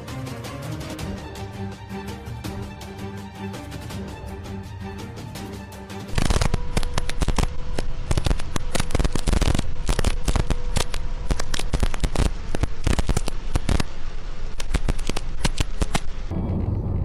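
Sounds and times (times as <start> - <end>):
heavy rain on car windscreen: 8.1 - 16.3.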